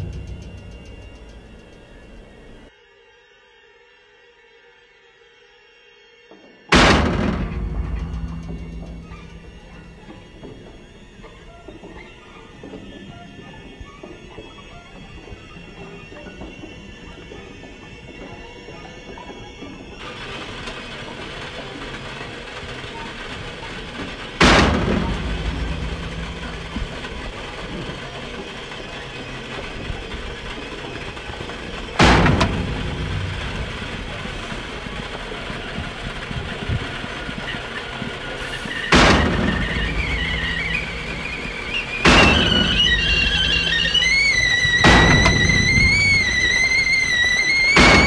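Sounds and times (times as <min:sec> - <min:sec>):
kettle rumbling hiss: 0:00.0 - 0:02.7, 0:19.3 - 0:48.0
kettle whistle: 0:00.0 - 0:02.7, 0:06.7 - 0:48.0.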